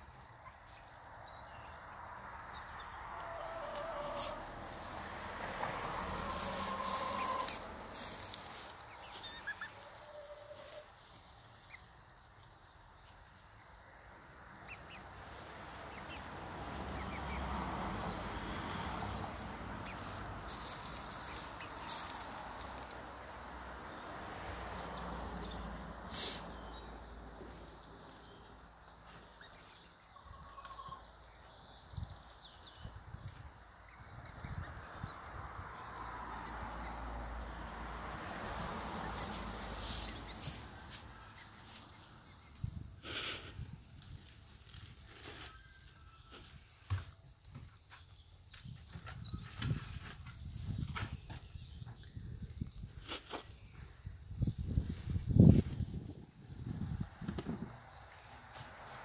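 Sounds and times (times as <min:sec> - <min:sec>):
hens scratching and pecking soil: 0:00.1 - 0:59.0
hens calling softly: 0:03.1 - 0:05.2, 0:06.0 - 0:12.0.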